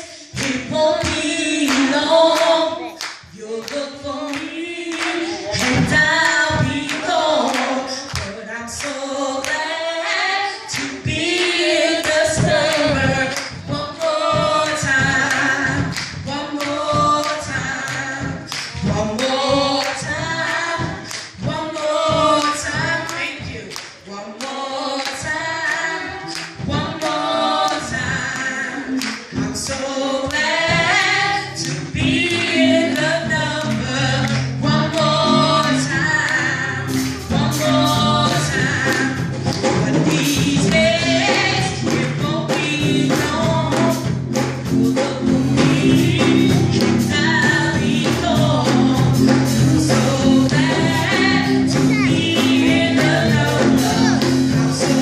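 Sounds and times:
woman singing gospel song: 0.0 - 55.0
hand claps keeping time: 10.7 - 21.4, 22.4 - 27.8, 28.4 - 30.5, 31.6 - 37.7.

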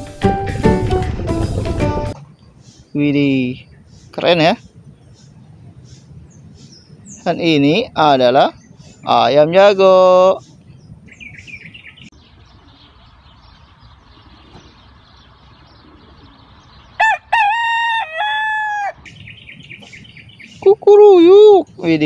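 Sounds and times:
small birds chirping: 2.1 - 22.0
rooster crowing: 17.0 - 19.1.

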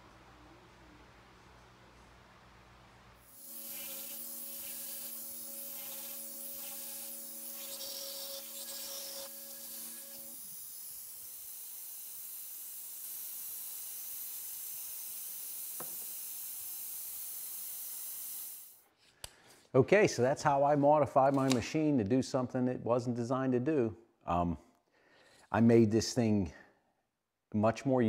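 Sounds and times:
router high hiss: 3.2 - 18.8.

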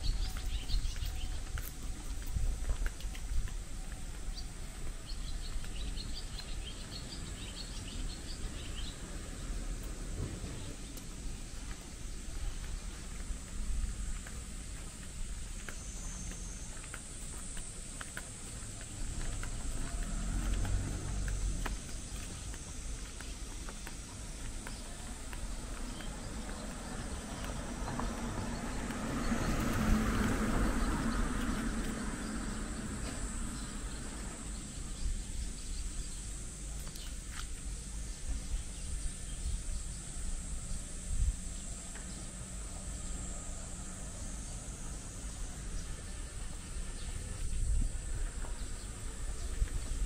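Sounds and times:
insects droning: 4.3 - 50.0.

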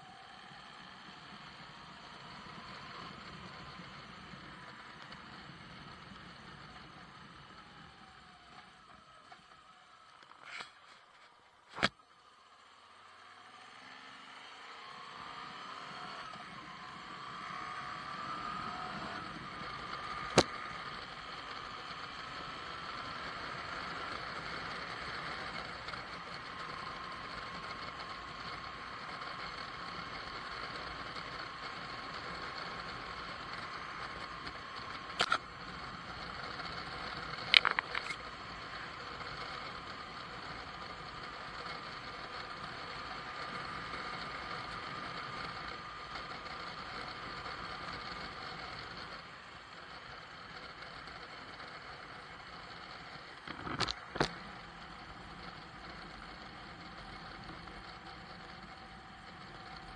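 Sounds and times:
motorcycle engine: 0.0 - 59.9
sharp click: 35.2 - 35.4.

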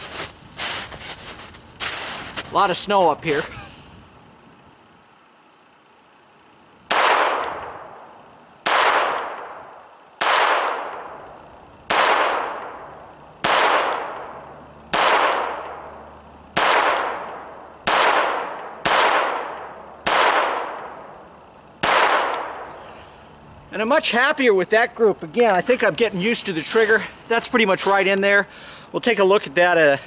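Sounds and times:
pistol shots: 6.9 - 8.0, 8.6 - 11.2, 11.9 - 21.1, 21.8 - 22.7.

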